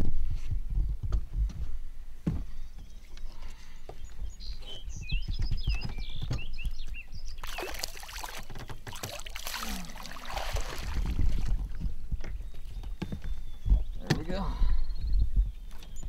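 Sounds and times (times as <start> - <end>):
water rushing through net: 7.4 - 11.6
fish splashing: 7.4 - 11.7
water running off net: 7.4 - 11.7.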